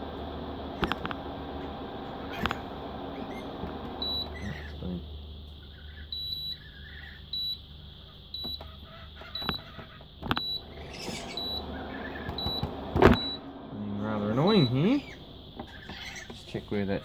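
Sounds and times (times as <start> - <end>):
steady low hum: 0.0 - 17.0
short high-pitched alarm beeps: 4.0 - 4.4, 6.1 - 6.6, 7.4 - 7.6, 11.3 - 11.7, 12.4 - 13.5, 14.4 - 15.0.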